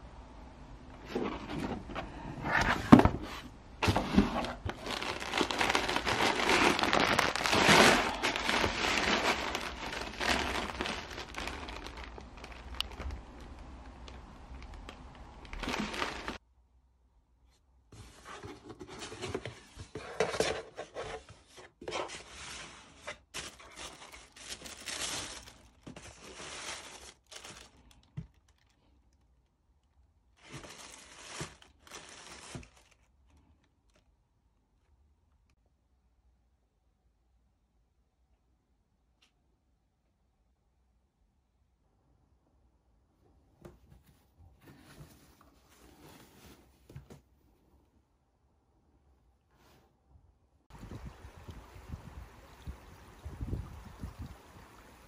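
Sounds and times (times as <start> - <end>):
tissue paper rustling: 2.6 - 16.4, 18.0 - 28.7, 30.4 - 34.0, 43.8 - 47.2
packaging crinkling and tearing: 3.8 - 16.4, 23.4 - 29.4, 30.4 - 34.1.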